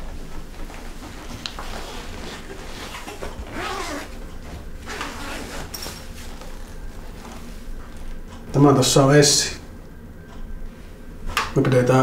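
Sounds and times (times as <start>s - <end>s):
fabric rustling: 0.0s - 7.8s
zipper rasping: 1.7s - 4.2s, 4.8s - 6.0s.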